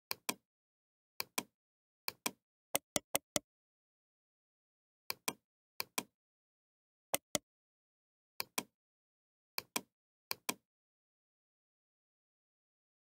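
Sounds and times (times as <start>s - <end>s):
mouse button clicking: 7.2s - 7.4s.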